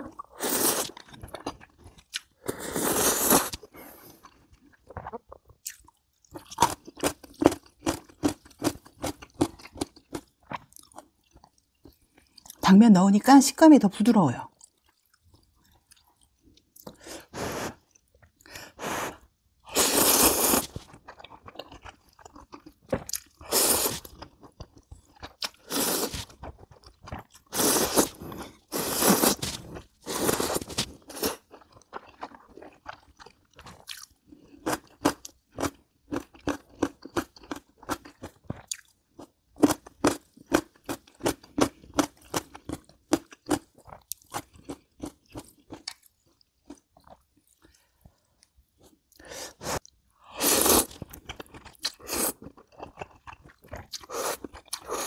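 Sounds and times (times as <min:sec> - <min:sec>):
slurping noodles: 0:00.4 - 0:01.0, 0:02.4 - 0:04.0, 0:18.6 - 0:20.8, 0:23.4 - 0:24.1, 0:25.6 - 0:26.4, 0:27.3 - 0:31.5, 0:49.2 - 0:51.1
rapid chewing with mouth clicks: 0:20.5 - 0:39.0, 0:39.6 - 0:55.0.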